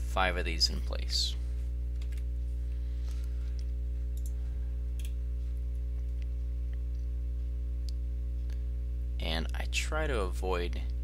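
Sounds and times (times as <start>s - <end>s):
low electrical hum: 0.0s - 11.0s
computer mouse clicks: 3.6s - 4.4s.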